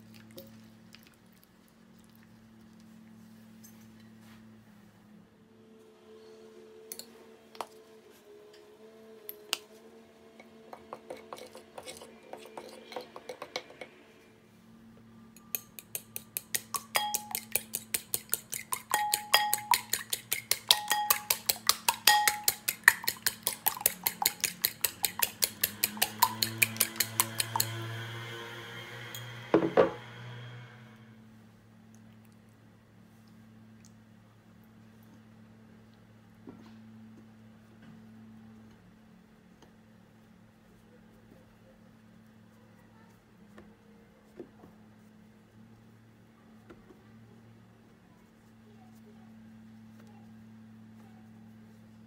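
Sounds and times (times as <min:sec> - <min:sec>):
fork clinking against bowl: 0:15.4 - 0:27.7.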